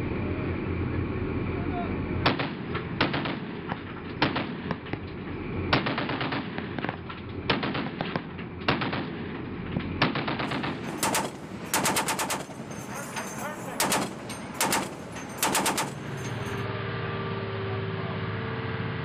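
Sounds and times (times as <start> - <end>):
heavy machine gun bursts: 10.0 - 16.7.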